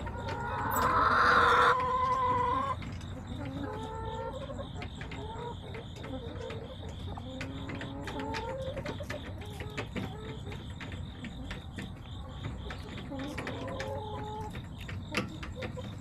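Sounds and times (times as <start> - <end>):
hens clucking: 0.0 - 16.0.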